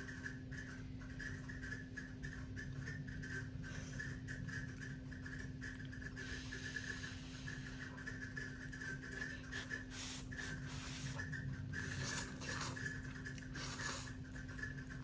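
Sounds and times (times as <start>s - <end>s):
steady low hum: 0.0s - 15.0s
noodles being slurped: 9.2s - 15.0s.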